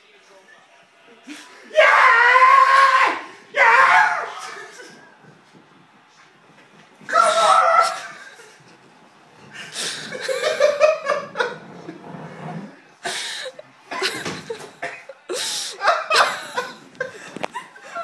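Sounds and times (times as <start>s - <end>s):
men laughing hard: 9.6s - 11.9s, 13.1s - 18.0s.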